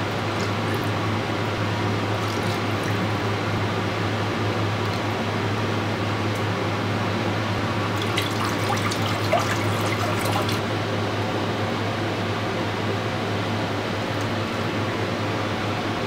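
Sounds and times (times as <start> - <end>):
water pouring and splashing: 0.0 - 1.0, 2.0 - 3.3, 7.6 - 10.6
steady low hum: 0.0 - 16.0.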